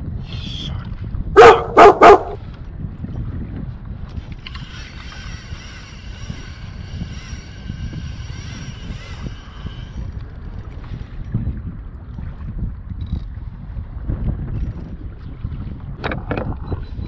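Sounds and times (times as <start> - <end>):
wind buffeting microphone: 0.0 - 17.0
water sloshing against hull: 0.8 - 17.0
high wavering whine: 4.4 - 10.2.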